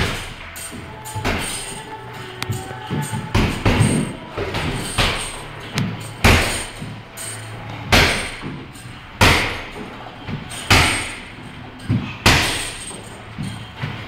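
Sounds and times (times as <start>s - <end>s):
punches thudding on heavy bag: 1.2s - 1.8s, 2.5s - 6.9s, 7.9s - 14.0s.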